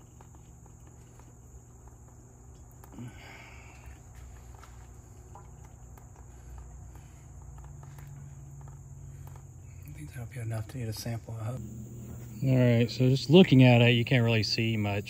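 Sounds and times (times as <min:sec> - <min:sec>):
high-pitched whine: 0:11.1 - 0:15.0
low hum: 0:11.2 - 0:15.0.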